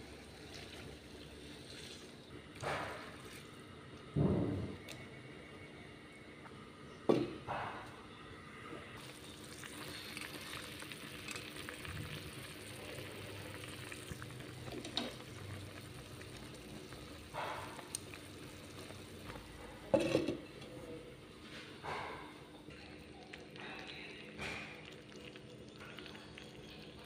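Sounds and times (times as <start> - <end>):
liquid boiling in a clay pot: 0.0 - 6.6, 9.0 - 27.0.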